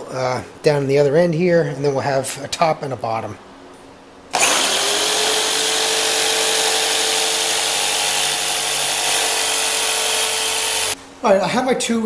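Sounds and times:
electric jigsaw cutting plastic board: 0:04.4 - 0:11.0.

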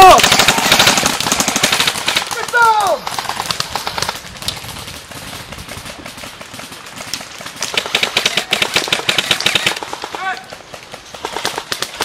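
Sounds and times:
airsoft rifles firing: 0:00.0 - 0:12.0.

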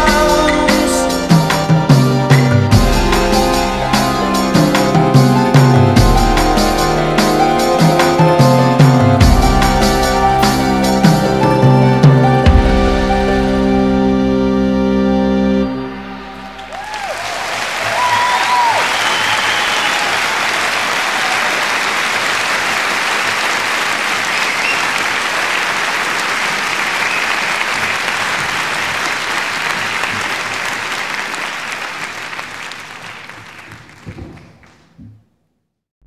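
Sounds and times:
audience applauding: 0:16.2 - 0:34.9
whistles: 0:18.4 - 0:20.2, 0:24.3 - 0:25.0, 0:27.0 - 0:27.5.

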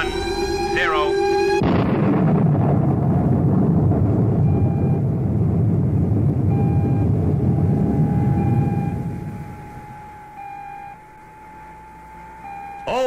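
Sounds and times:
rocket engines roaring: 0:00.0 - 0:13.0
short electronic beeps: 0:08.0 - 0:09.0.

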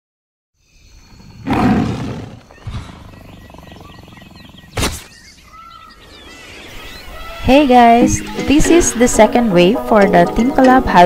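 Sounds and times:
big cat roaring: 0:01.2 - 0:04.8.

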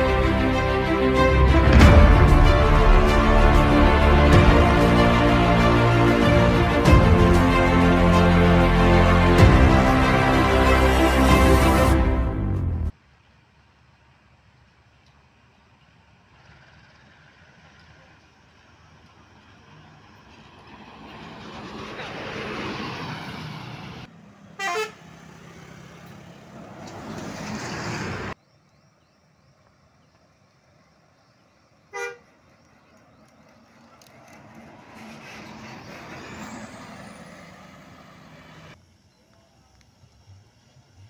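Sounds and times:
coaches driving past: 0:00.0 - 0:13.4, 0:32.1 - 0:38.8.

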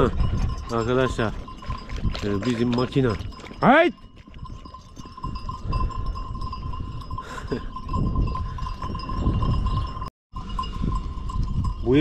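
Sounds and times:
sheep bells ringing: 0:00.0 - 0:12.0.

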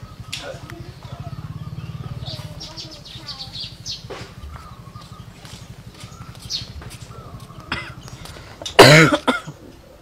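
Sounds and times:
faint bird chirps: 0:00.0 - 0:08.6
person coughing: 0:07.7 - 0:08.0, 0:08.7 - 0:09.6.

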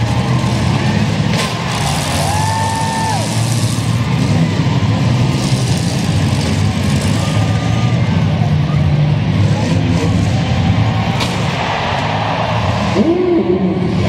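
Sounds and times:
vans crashing: 0:00.0 - 0:13.0
car engines revving: 0:00.0 - 0:14.0.

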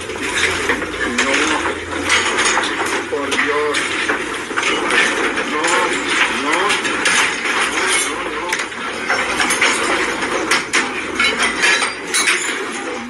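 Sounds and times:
furniture rattling and knocking: 0:00.0 - 0:13.0
voice: 0:00.3 - 0:01.8, 0:02.9 - 0:04.0, 0:05.2 - 0:07.0, 0:07.8 - 0:08.9.

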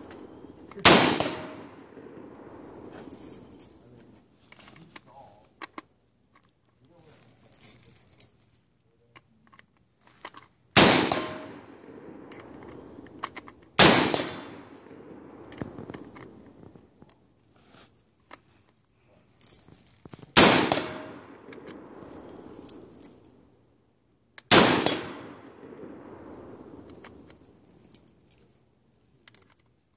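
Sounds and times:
rifle shots echoing: 0:00.0 - 0:03.8, 0:10.8 - 0:16.7, 0:20.4 - 0:23.4, 0:24.5 - 0:27.8.

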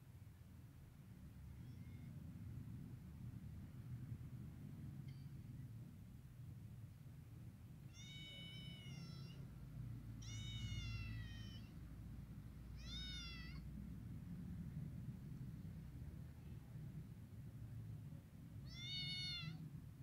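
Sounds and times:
kitten mewing: 0:07.9 - 0:09.5, 0:10.2 - 0:11.7, 0:12.7 - 0:13.7, 0:18.6 - 0:19.6.

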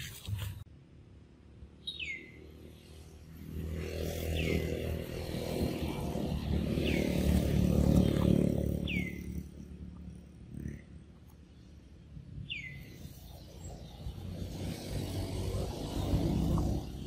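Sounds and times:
vehicle engine passing by: 0:02.0 - 0:11.0, 0:12.6 - 0:17.0.

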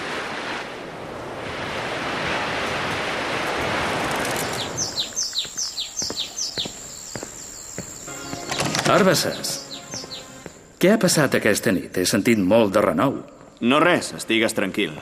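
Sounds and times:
sea waves washing: 0:00.0 - 0:05.2
birds chirping: 0:04.3 - 0:11.2.

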